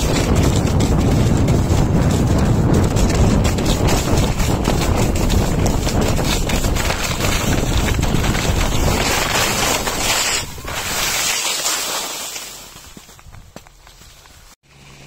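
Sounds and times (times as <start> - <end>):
low rumble: 0.0 - 10.7
wind buffeting microphone: 0.0 - 10.9
skis scraping icy snow: 0.0 - 15.0.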